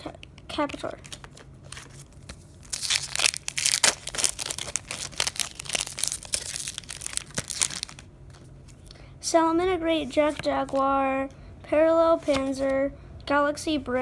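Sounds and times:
foil pack crinkling and tearing: 2.6s - 8.1s.

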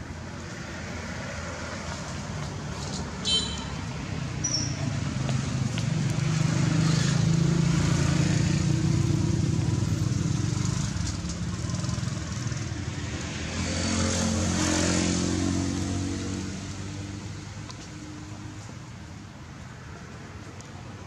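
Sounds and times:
brief high squeak: 4.4s - 4.8s.

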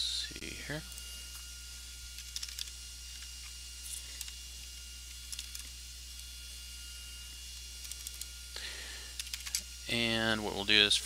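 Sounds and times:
low electrical hum: 0.0s - 11.0s
keyboard keystrokes: 2.2s - 2.7s.

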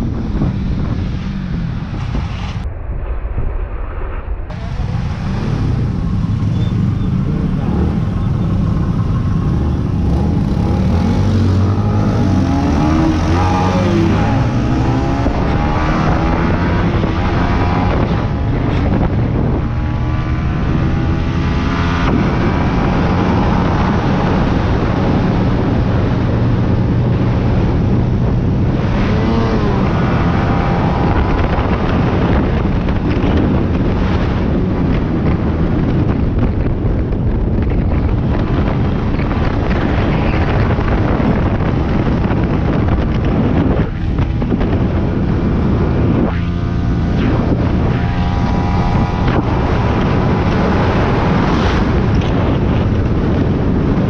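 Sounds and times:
wind noise on microphone: 0.0s - 54.0s
motorcycle engine running: 4.5s - 13.0s.

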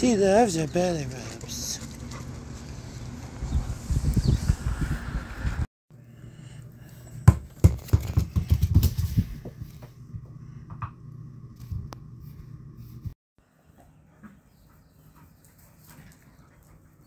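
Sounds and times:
knocks and scrapes on floor: 7.3s - 9.9s
low room hum: 8.8s - 13.2s.

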